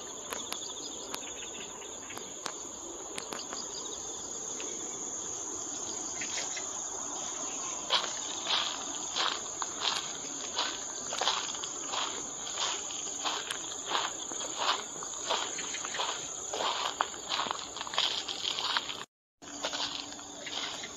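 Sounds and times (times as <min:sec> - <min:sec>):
insect chorus: 0:00.0 - 0:20.9
footsteps walking: 0:07.8 - 0:20.9.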